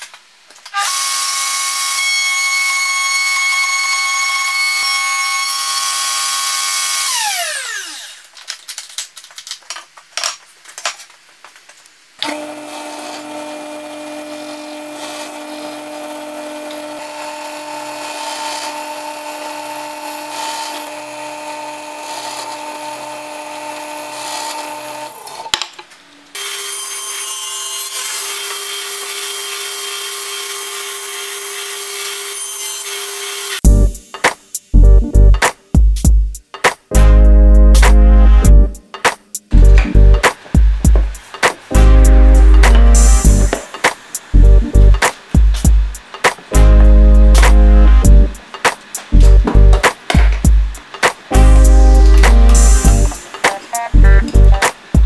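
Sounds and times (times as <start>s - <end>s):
machine cutting wood: 0.7s - 8.2s, 12.2s - 25.5s, 26.4s - 33.6s
power tool whining and spinning down: 0.8s - 8.2s, 12.2s - 25.5s, 26.4s - 33.6s.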